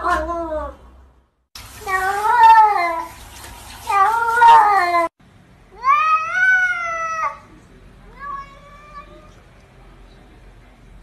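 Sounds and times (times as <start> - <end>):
cats meowing: 1.8 - 3.1, 3.9 - 5.1, 8.1 - 9.4.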